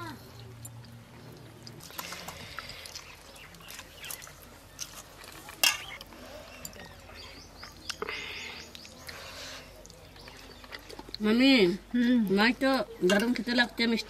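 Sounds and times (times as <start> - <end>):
wet squishing by hand: 0.4 - 11.2.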